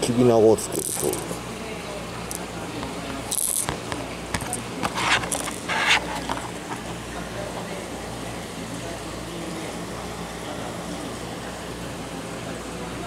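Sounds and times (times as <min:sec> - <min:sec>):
plastic packaging scrapes and clicks: 0:03.4 - 0:06.9.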